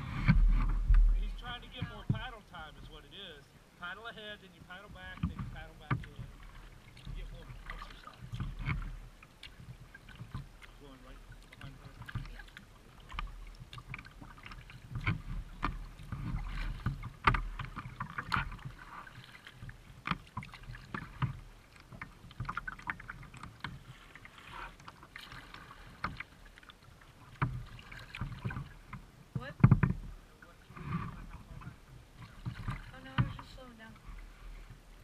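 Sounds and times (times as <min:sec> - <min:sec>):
paddle knocking against kayak: 0:00.0 - 0:03.2, 0:04.1 - 0:34.8
paddle splashing in water: 0:00.0 - 0:35.0.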